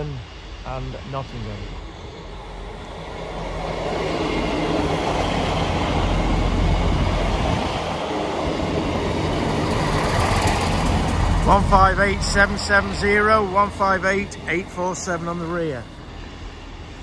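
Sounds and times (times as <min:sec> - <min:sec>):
diesel engines droning: 0:00.0 - 0:17.0
train wheels rumbling on rail: 0:00.0 - 0:17.0.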